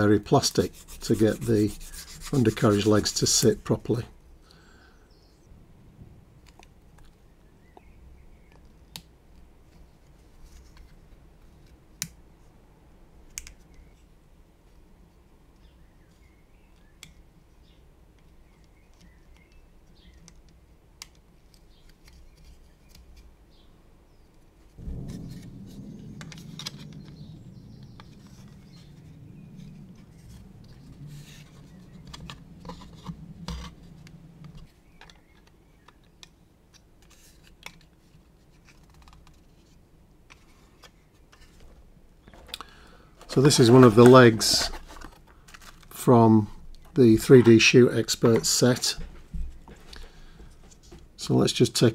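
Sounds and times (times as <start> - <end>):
steady low hum: 24.8 - 34.8
plastic parts clicking and scraping: 29.7 - 46.1.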